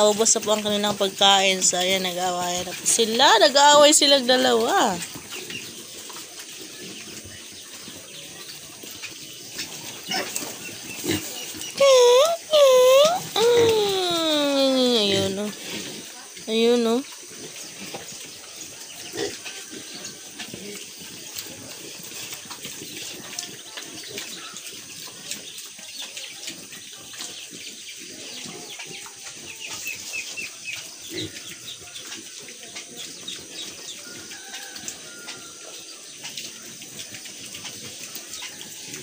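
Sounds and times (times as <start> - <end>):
piglets snuffling: 9.5 - 16.4
piglets grunting: 10.0 - 15.7.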